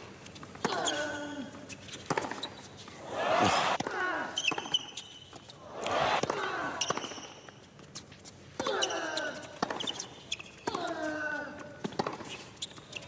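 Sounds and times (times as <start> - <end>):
shoes squeaking on court: 0.2 - 3.8, 4.4 - 5.7, 6.8 - 10.8, 11.8 - 13.0.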